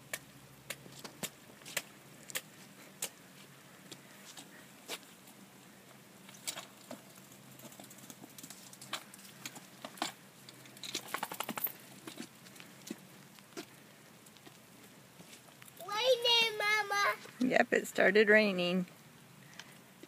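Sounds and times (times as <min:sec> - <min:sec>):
kick scooter rattling on concrete: 0:06.4 - 0:12.3.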